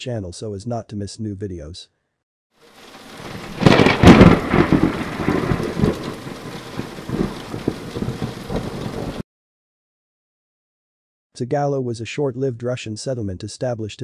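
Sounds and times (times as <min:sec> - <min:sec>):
rain: 0:02.6 - 0:09.2
thunderclap: 0:02.8 - 0:09.2.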